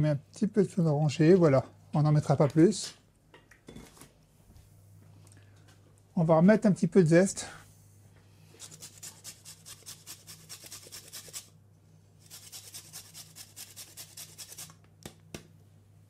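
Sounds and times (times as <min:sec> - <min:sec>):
grater scraping lemon: 0:08.6 - 0:11.5, 0:12.2 - 0:14.8.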